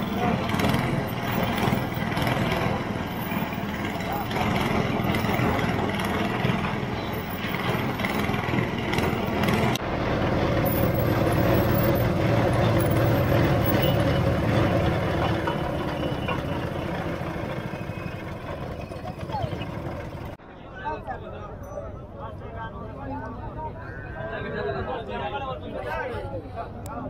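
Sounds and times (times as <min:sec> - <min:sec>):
vehicle engine running: 0:00.0 - 0:20.4
street noise: 0:00.0 - 0:27.0.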